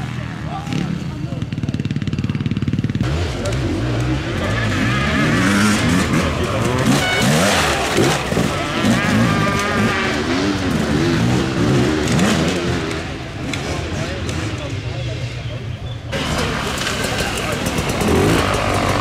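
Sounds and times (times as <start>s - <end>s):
motorcycle engines revving: 0.0s - 19.0s
voices: 0.0s - 19.0s.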